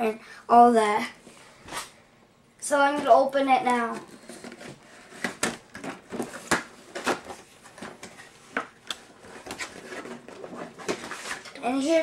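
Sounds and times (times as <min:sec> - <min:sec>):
cardboard packaging rustling: 0:03.9 - 0:12.0.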